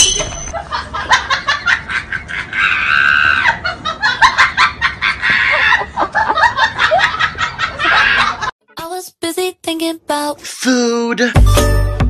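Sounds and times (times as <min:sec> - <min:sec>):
person laughing: 0:00.6 - 0:08.5.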